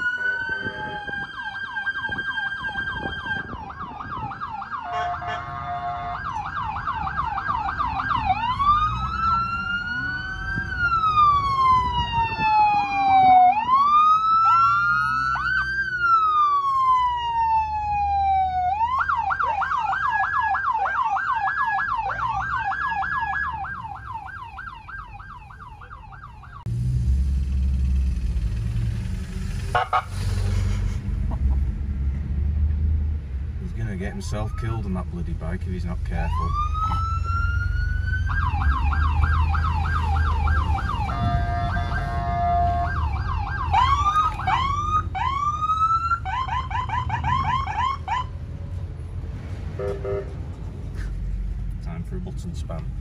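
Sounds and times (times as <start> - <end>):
police siren yelping and wailing: 0.0 - 26.7, 29.7 - 30.2, 33.9 - 35.1, 36.1 - 48.4.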